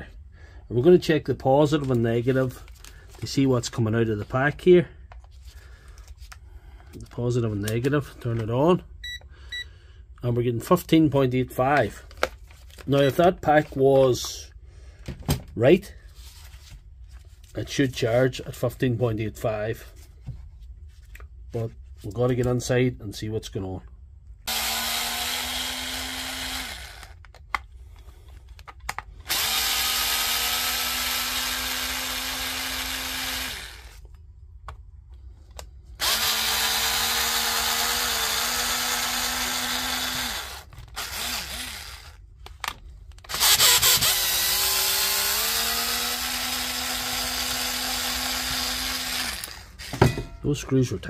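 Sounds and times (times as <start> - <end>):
electric screwdriver running: 24.5 - 27.2, 29.2 - 34.0, 36.0 - 42.2, 43.3 - 50.0.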